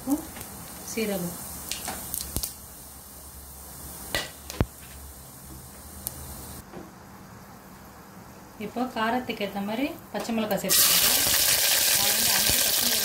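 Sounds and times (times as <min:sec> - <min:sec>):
spices sizzling in hot oil: 0:00.0 - 0:06.6, 0:10.4 - 0:13.0.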